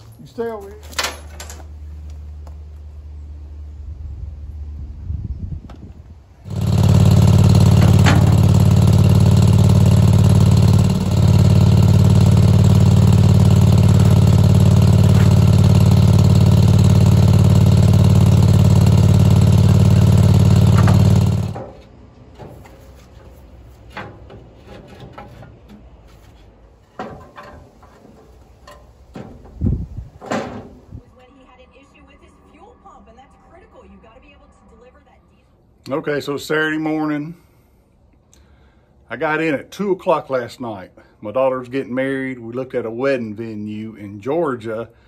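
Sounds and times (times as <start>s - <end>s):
garden tractor engine running: 6.2s - 31.0s.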